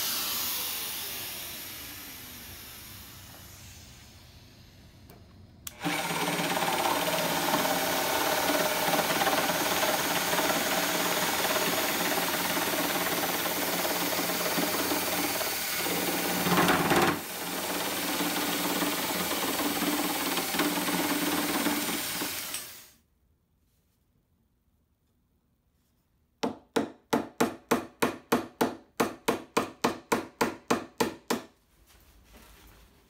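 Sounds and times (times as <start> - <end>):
jigsaw cutting wood: 5.7 - 22.9.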